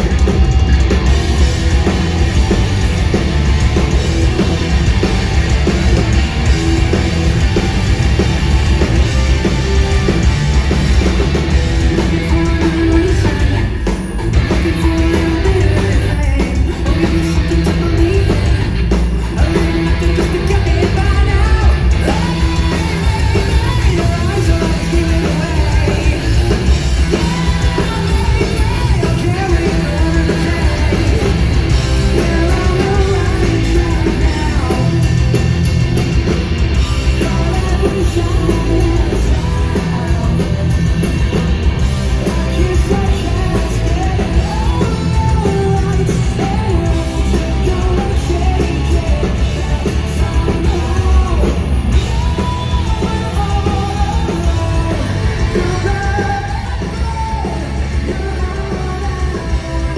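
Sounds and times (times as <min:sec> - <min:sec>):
live rock band playing: 0:00.0 - 0:59.9
man singing lead vocal: 0:11.0 - 0:35.7, 0:36.8 - 0:59.9.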